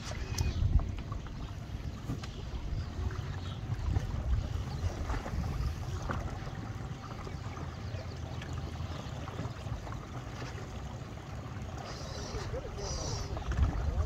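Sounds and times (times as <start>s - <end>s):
wind buffeting microphone: 0.0s - 6.9s, 12.4s - 14.0s.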